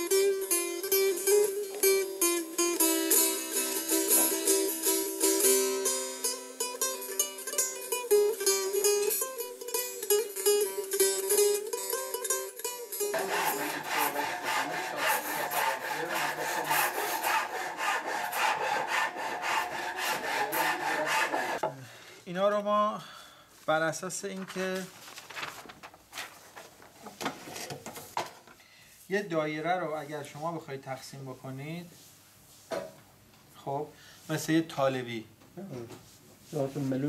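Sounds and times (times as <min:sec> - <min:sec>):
plucked string instrument music: 0:00.0 - 0:21.5
hand rasp scraping wood: 0:13.1 - 0:21.6.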